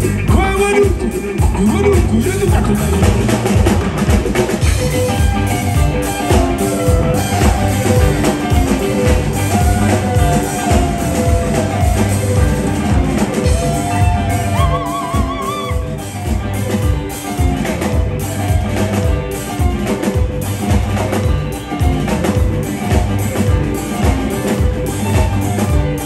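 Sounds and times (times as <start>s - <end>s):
rock band playing: 0.0s - 26.0s
held wavering high note: 5.1s - 16.9s.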